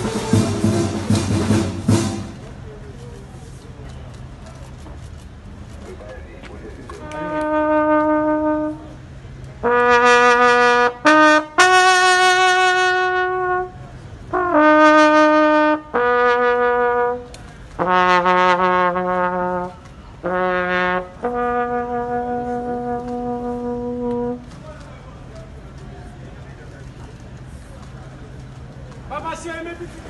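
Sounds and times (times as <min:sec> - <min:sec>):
brass instrument long notes: 0:00.0 - 0:02.4, 0:07.0 - 0:24.5.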